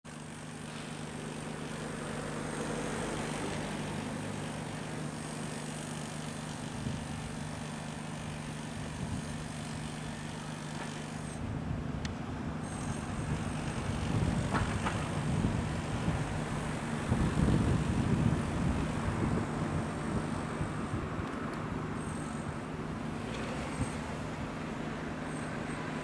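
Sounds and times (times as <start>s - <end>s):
low city drone: 0.1s - 26.0s.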